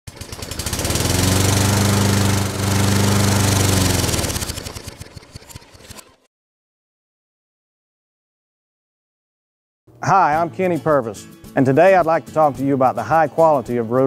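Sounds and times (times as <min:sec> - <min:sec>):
lawn mower engine running: 0:00.1 - 0:06.3.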